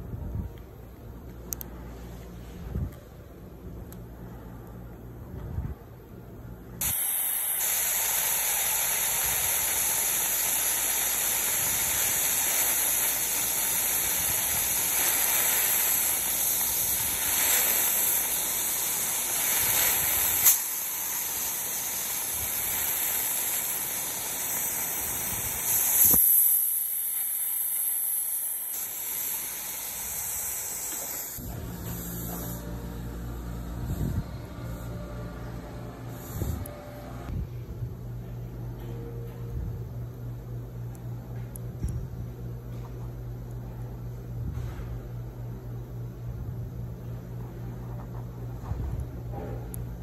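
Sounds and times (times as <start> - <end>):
dental syringe spray and suction hissing: 6.8 - 32.6.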